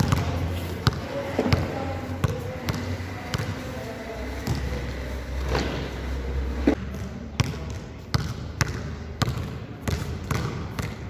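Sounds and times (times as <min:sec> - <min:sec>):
basketball bouncing on gym floor: 0:00.0 - 0:03.6, 0:06.9 - 0:11.0.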